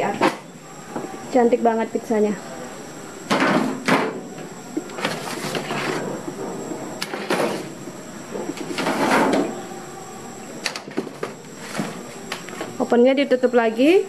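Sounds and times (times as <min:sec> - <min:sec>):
metal trays scraping on racks: 0:08.6 - 0:09.6.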